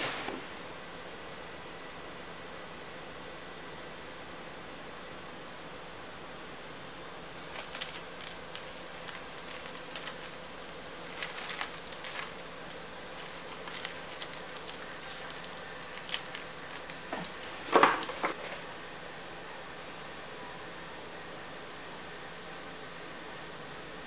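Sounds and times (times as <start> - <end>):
steady hiss: 0.0 - 2.3
cling film crinkling: 7.4 - 18.6.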